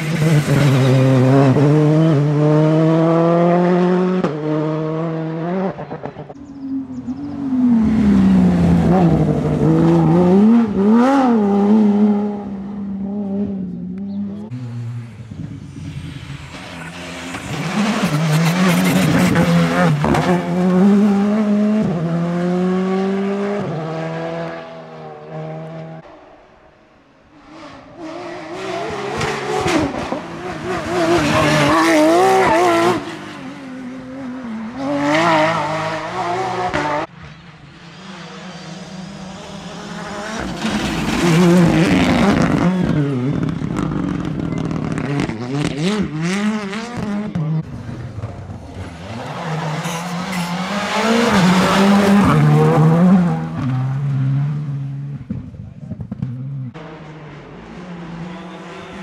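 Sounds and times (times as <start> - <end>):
rally cars passing at full throttle: 0.0 - 59.0.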